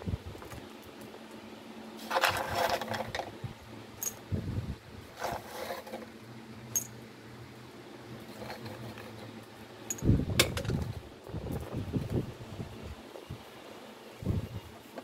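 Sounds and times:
steady low hum: 0.0s - 15.0s
rustling and scraping: 1.9s - 4.3s, 5.0s - 7.0s, 8.1s - 12.3s.

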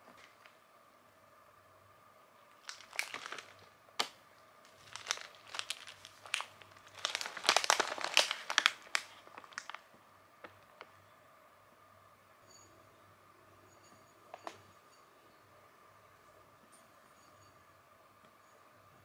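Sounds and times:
snack packet crinkling: 2.5s - 10.9s.

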